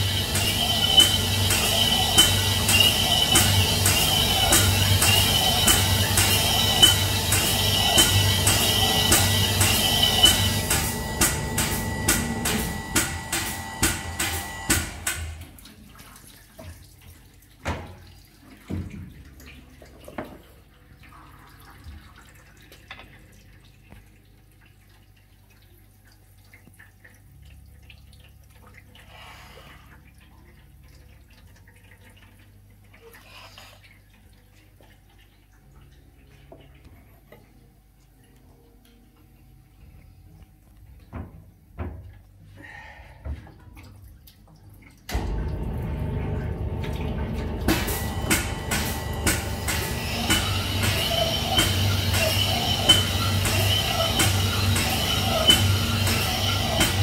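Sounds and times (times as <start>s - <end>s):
honing machine stroking rhythmically: 0.0s - 15.0s, 47.5s - 57.0s.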